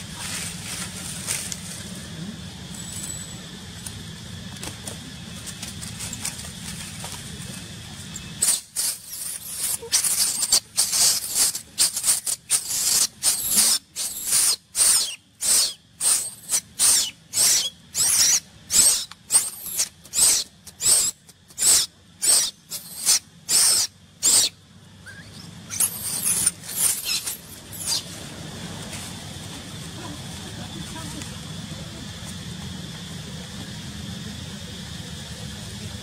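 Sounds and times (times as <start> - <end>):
baby monkey shrieking: 8.4 - 28.1.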